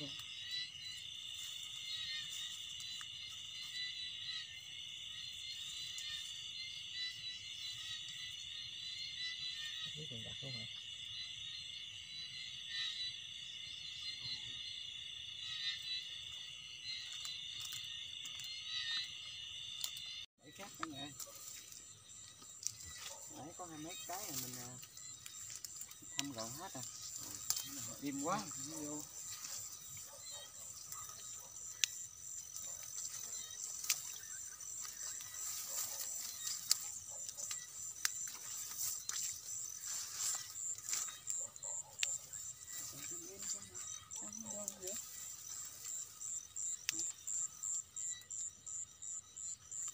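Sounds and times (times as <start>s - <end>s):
footsteps through tall grass: 0.0s - 8.0s, 20.5s - 47.6s
insects trilling: 0.0s - 49.9s.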